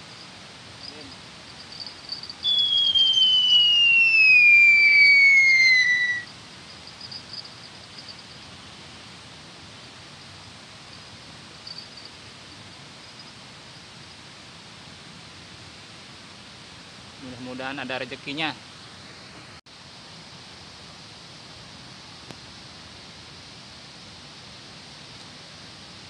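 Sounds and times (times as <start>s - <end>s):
fishing line whining off reel: 2.4s - 6.3s.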